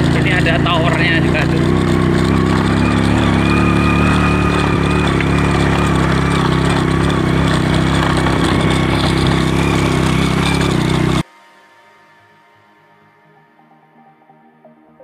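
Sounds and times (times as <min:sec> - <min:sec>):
motorcycle engine running under load: 0:00.0 - 0:11.3.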